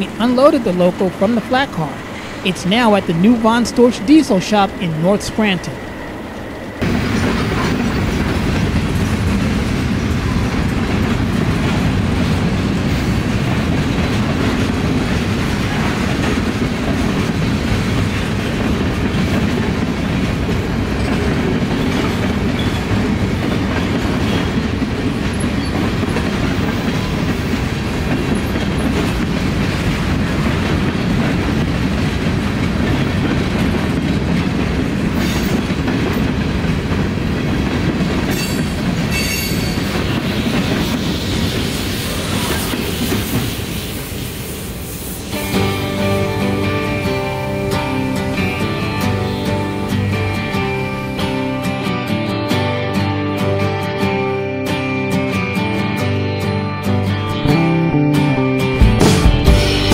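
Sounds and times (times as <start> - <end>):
train wheels clicking over rail joints: 6.8 - 44.1.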